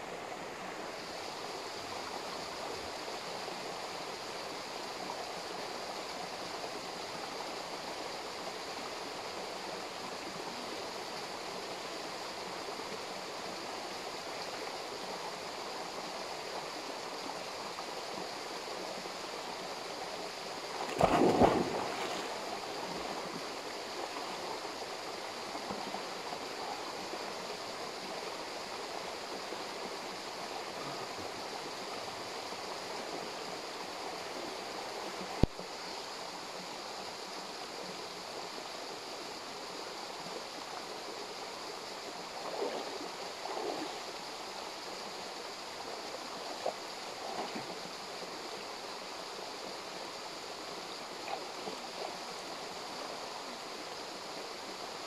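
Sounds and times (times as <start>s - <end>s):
person splashing into pool: 20.9s - 22.4s.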